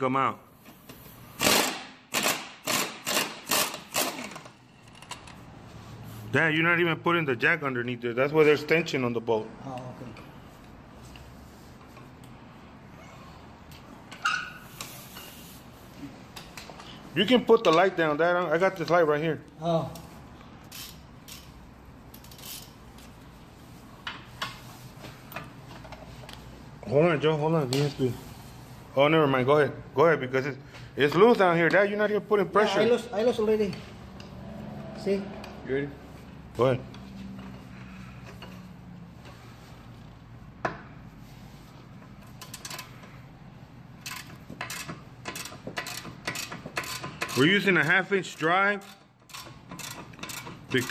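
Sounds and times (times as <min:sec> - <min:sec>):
ratchet wrench clicking: 0:01.4 - 0:05.4, 0:20.6 - 0:22.8, 0:42.2 - 0:43.1, 0:44.0 - 0:50.9.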